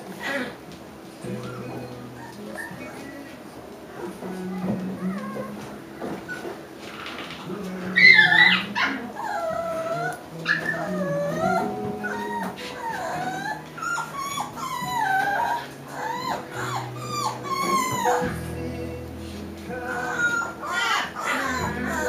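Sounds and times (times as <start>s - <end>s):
puppies yelping while playing: 1.4s - 3.0s, 7.9s - 18.5s, 19.8s - 22.0s.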